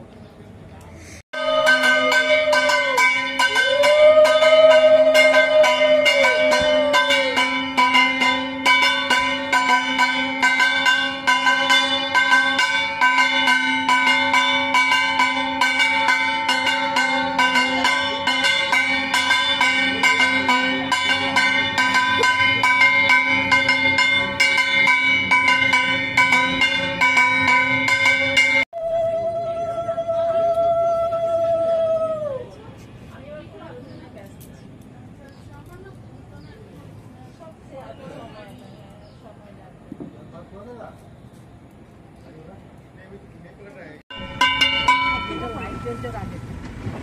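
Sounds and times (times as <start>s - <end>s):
metal bells ringing rapidly: 1.4s - 28.7s, 44.1s - 46.6s.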